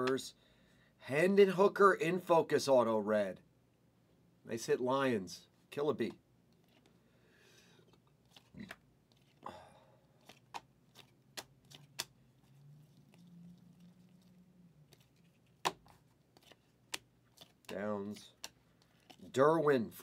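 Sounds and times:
trading cards flipped by hand: 7.9 - 9.4, 10.2 - 13.3, 14.8 - 19.3.

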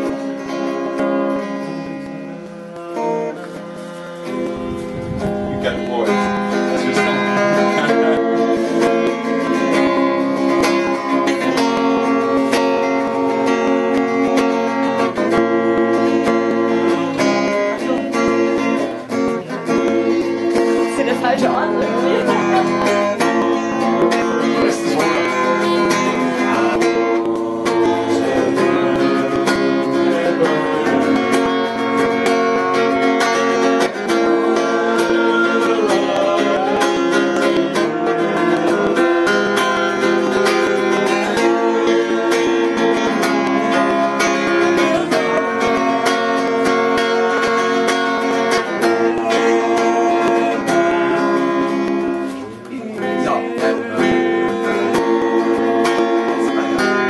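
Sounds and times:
guitar strumming chords: 0.0 - 57.0.

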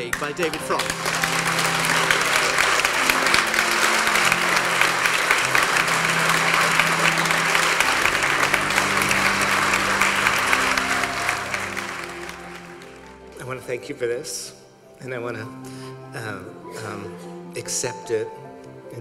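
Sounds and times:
audience applauding: 0.0 - 13.4
background music with low held notes: 0.0 - 19.0.

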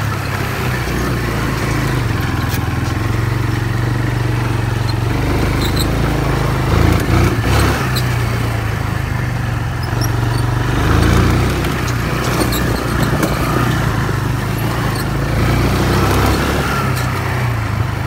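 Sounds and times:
atv engine running: 0.0 - 18.0
small clicks and rattles: 9.8 - 14.0.

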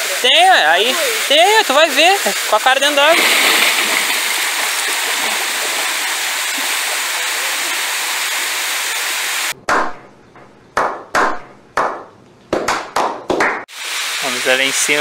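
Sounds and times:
small waterfall rushing: 0.0 - 9.6, 13.7 - 15.0
swimmer splashing: 3.0 - 9.5
slow hand claps: 10.8 - 13.7.

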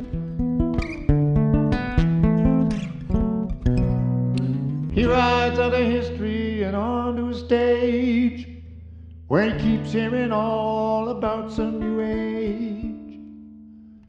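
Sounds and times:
strummed nylon-string guitar: 0.0 - 14.0
man singing with vibrato: 4.9 - 8.6, 9.3 - 13.3.

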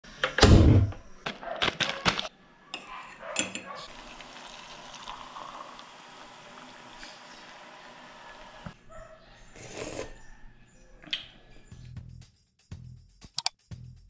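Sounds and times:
water pouring into a mug: 3.8 - 8.7.

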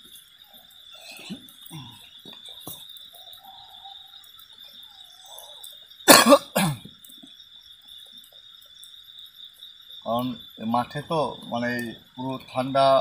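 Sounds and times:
crickets chirring: 0.0 - 13.0
person coughing: 6.1 - 6.9.

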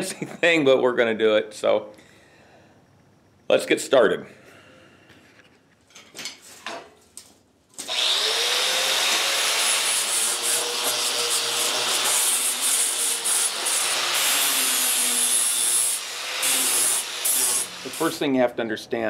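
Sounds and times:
angle grinder grinding steel: 7.9 - 18.2.

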